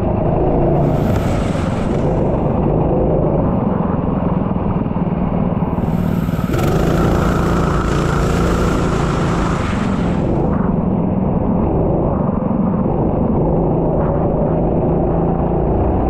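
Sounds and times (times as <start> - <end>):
racing engine at high revs: 0.4 - 3.8, 5.7 - 11.1.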